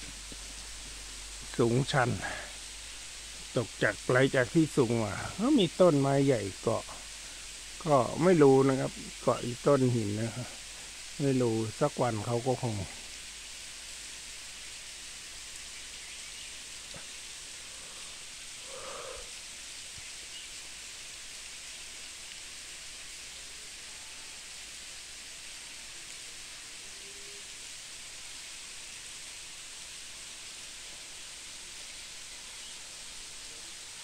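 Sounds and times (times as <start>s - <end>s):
waterfall splashing: 0.0s - 34.0s.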